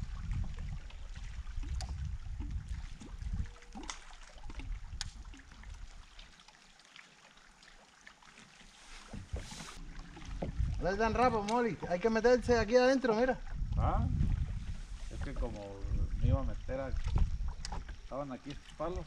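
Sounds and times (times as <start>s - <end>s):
water lapping against boat: 0.0s - 19.0s
low rumble: 9.3s - 18.0s.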